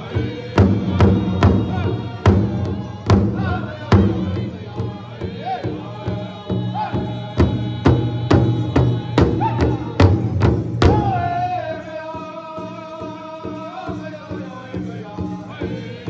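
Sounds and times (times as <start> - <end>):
group singing: 0.0 - 16.0
large drum beating: 0.1 - 11.8.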